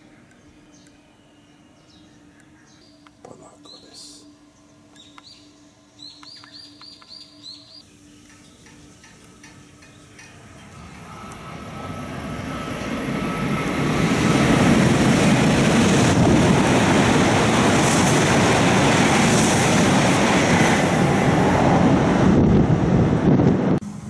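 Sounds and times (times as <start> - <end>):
high-speed train passing: 5.6 - 24.0
wheel-on-rail noise: 7.6 - 24.0.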